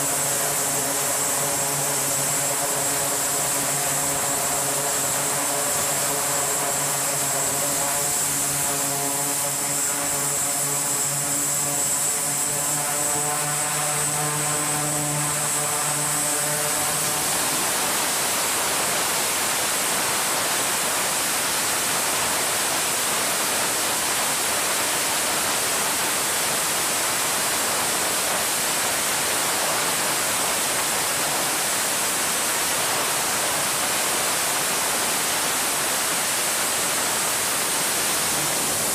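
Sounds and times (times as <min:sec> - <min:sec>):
turboprop engines humming: 0:00.0 - 0:19.8, 0:37.2 - 0:38.9.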